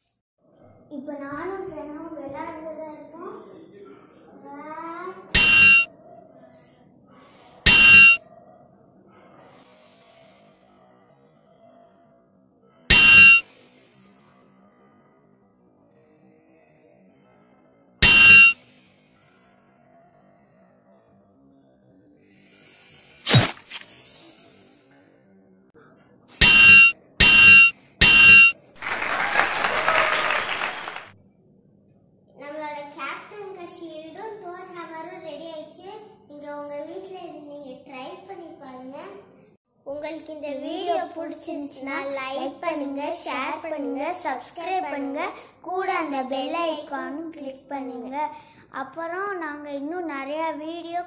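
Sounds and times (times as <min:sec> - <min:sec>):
applause: 0:28.8 - 0:31.2.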